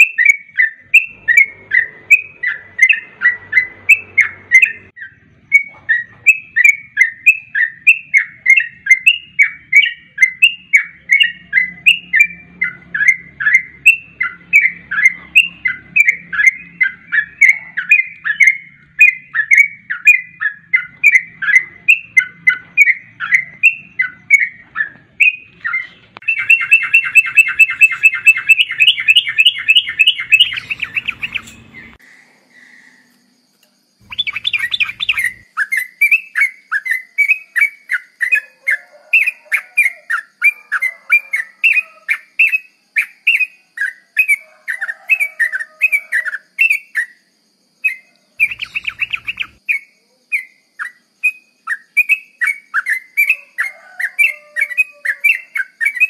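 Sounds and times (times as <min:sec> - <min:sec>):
bulbul whistled song: 0:00.0 - 0:32.0, 0:34.0 - 0:56.0
rapid chattering trill: 0:26.3 - 0:32.0, 0:34.0 - 0:35.4.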